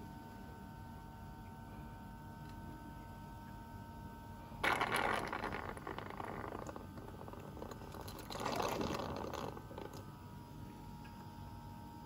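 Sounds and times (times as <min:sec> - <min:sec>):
honey slurping through a tube: 0:04.6 - 0:10.1.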